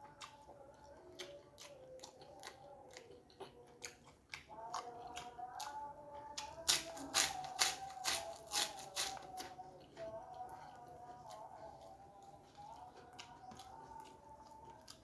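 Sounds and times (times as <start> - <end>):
soft chewing clicks: 0.0 - 7.5, 8.3 - 15.0
crisp cracker crunching: 6.5 - 9.5.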